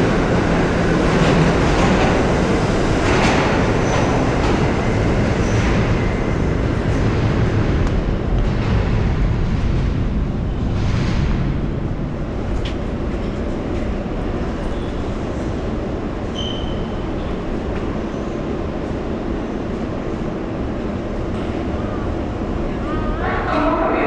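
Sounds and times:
subway trains rumbling: 0.0 - 24.0
high squeal: 16.3 - 17.0.

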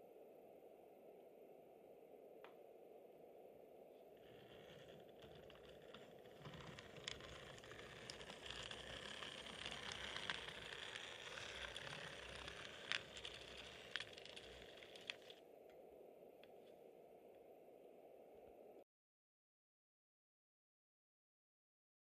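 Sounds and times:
model train motor whirring: 4.2 - 15.4.

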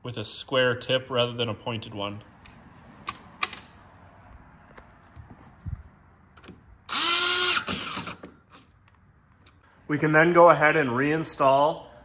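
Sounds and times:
cordless drill motor whine: 6.9 - 8.3.

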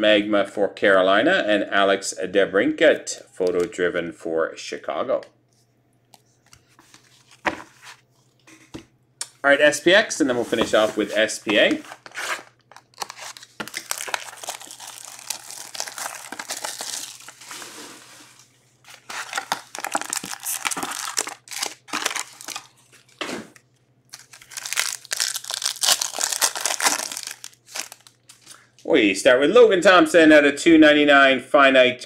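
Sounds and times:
plastic shrink wrap crinkling: 11.8 - 23.2, 24.1 - 28.7
foil pack crinkling and tearing: 11.9 - 23.2, 24.1 - 28.6.

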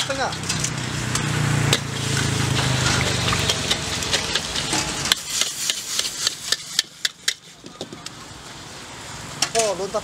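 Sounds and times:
metal spatula scraping a wok: 0.0 - 7.6
food sizzling: 0.0 - 10.0.

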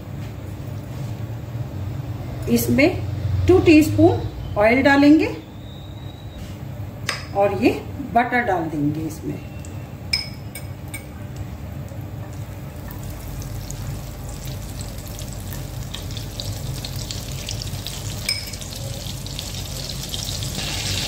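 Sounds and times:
butter sizzling in oil: 13.0 - 21.0.

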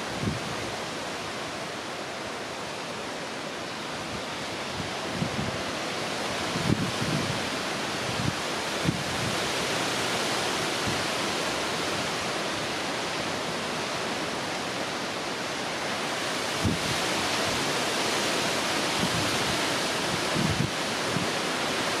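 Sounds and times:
choppy sea: 0.0 - 22.0
strong wind: 0.0 - 22.0
wind buffeting microphone: 4.2 - 5.8, 6.4 - 9.4, 16.5 - 17.1, 19.0 - 21.4.

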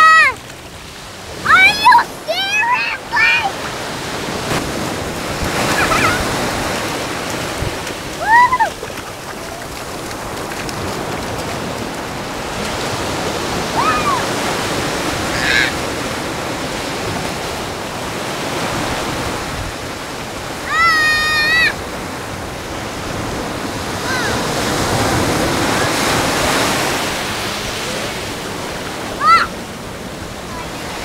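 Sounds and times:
surf washing in shallows: 0.0 - 31.0
high-pitched cries: 1.5 - 3.6, 8.2 - 8.9, 13.8 - 14.3, 20.7 - 21.8.

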